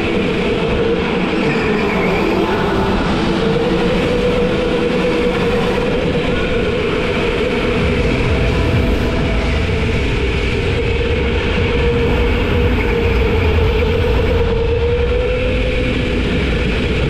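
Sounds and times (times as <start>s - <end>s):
go-kart engine droning: 0.0s - 17.0s
rattling rumbling noise: 5.8s - 17.0s.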